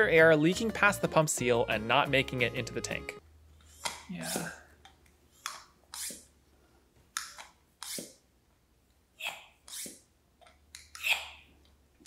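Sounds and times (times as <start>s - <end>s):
hand pump air hisses: 5.4s - 6.3s, 7.8s - 8.2s, 9.6s - 10.1s.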